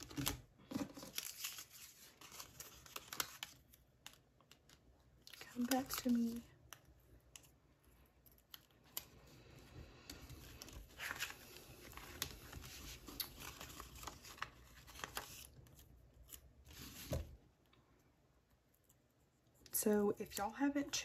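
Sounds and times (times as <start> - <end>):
paper and plastic rustling: 0.0 - 6.5, 8.6 - 17.4.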